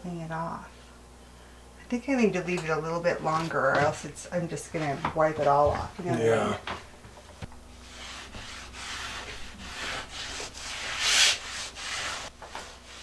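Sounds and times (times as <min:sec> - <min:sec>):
rag rubbing on wood: 0:07.7 - 0:13.0.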